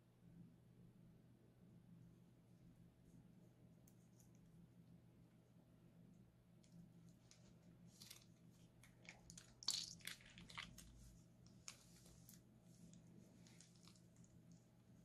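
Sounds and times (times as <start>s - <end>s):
piping bag crackling: 6.7s - 15.0s
slime squelching: 7.2s - 14.4s.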